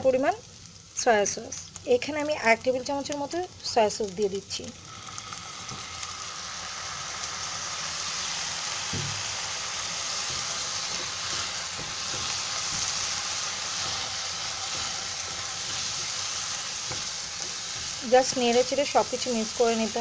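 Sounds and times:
food sizzling in oil: 0.0s - 20.0s
spatula scraping a pan: 10.1s - 18.6s.

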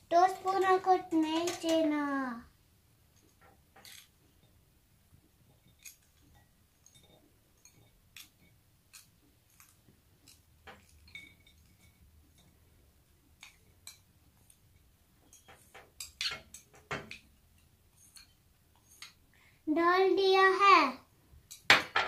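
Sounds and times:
plastic spoon clinking glass bowl: 5.6s - 12.5s.

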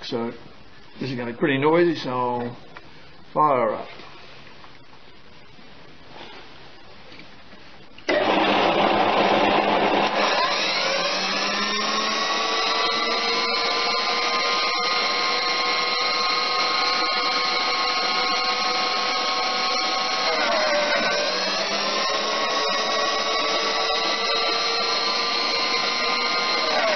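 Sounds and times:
grinder motor whine: 8.1s - 26.9s.

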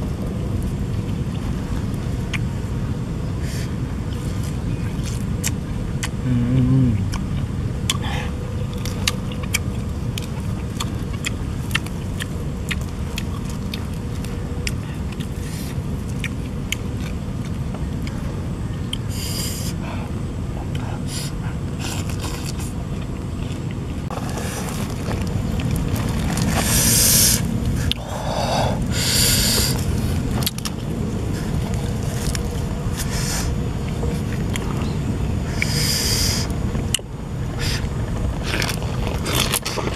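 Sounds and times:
clicks and smacks of eating: 8.6s - 18.2s.

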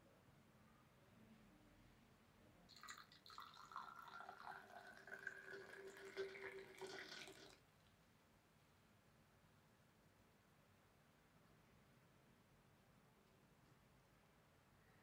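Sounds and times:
tea pouring into steel tumbler: 2.7s - 7.7s.

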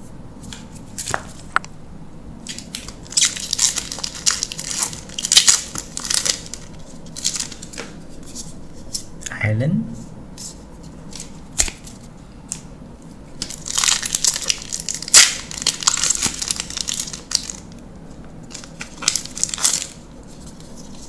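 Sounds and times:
foil wrapper crinkling and tearing: 2.5s - 8.0s, 13.4s - 17.8s, 18.4s - 21.0s.

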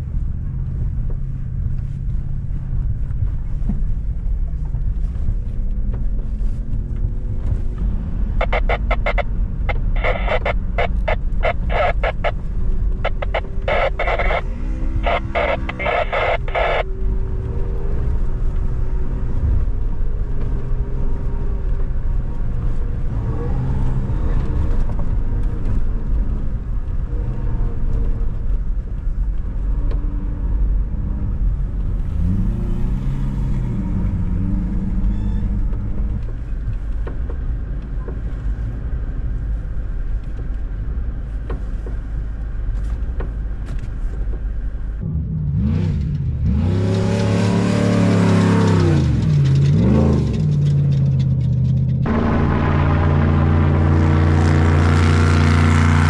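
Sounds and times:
truck engine and road rumble: 0.0s - 56.0s.

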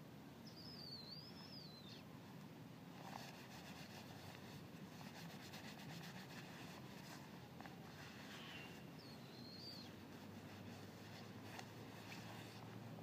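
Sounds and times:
faint low hum: 0.0s - 13.0s
thin high-pitched call: 0.5s - 2.0s, 8.4s - 9.9s.

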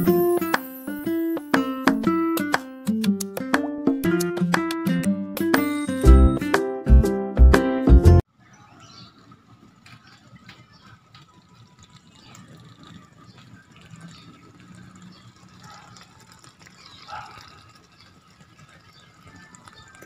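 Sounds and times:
cream sauce simmering and popping: 9.1s - 20.0s.

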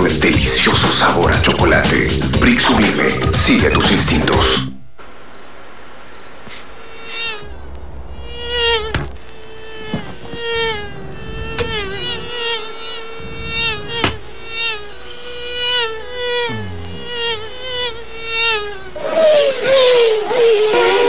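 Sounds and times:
mosquito buzzing whine: 4.6s - 21.0s.

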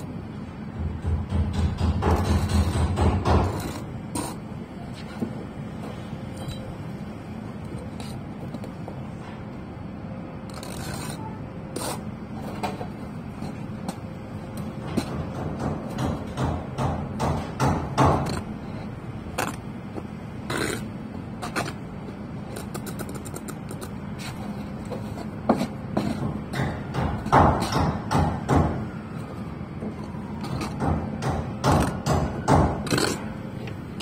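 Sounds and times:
trowel and bricks tapping on mortar: 1.0s - 4.4s.

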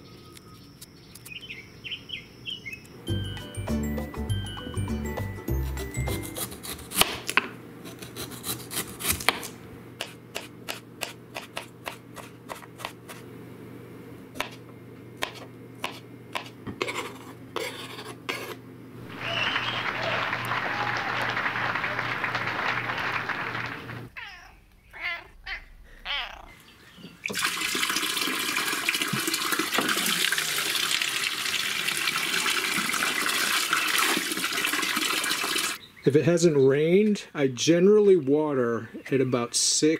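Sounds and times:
soft music: 3.0s - 6.6s
knife chopping on cutting board: 6.0s - 13.2s, 14.4s - 14.6s, 15.2s - 18.6s
rough rubbing scraping noise: 16.8s - 18.6s.

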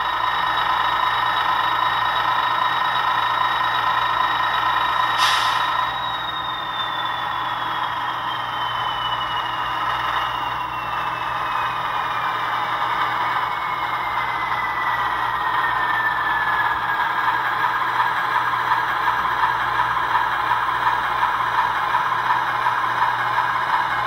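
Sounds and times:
model diesel engine hum: 0.0s - 24.0s
short hiss: 5.2s - 5.8s
thin whine sliding down: 5.2s - 11.8s.

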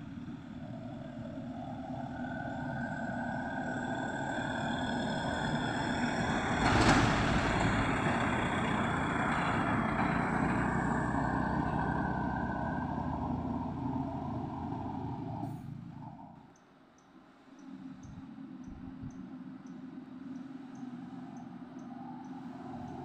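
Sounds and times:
diesel truck driving past: 0.0s - 16.5s.

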